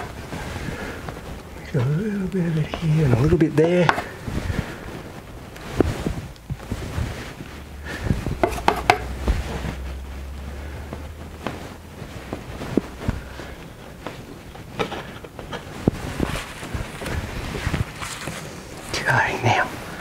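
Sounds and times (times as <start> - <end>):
low hum: 4.1 - 20.0
palette knife scraping paint: 8.4 - 9.1
palette knife tapping on canvas: 8.4 - 9.1.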